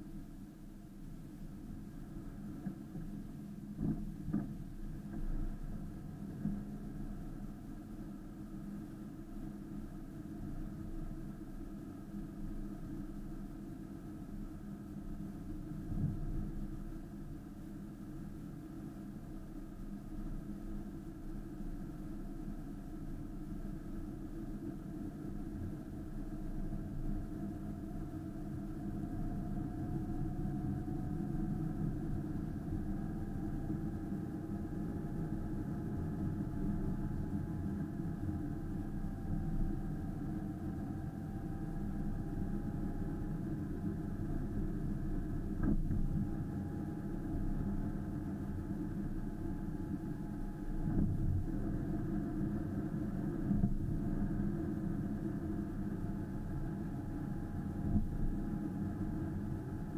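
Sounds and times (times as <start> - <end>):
car engine and road noise: 41.4 - 59.5.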